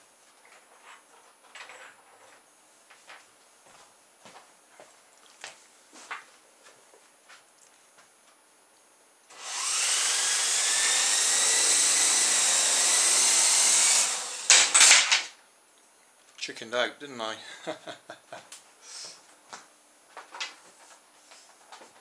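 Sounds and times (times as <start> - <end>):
rc helicopter rotor whine: 9.3 - 14.8.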